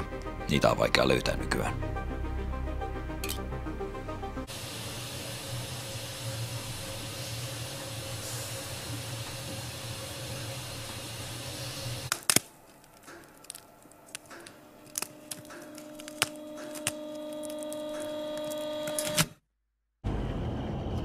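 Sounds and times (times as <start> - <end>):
stove stones crackling and ticking: 5.0 - 18.7.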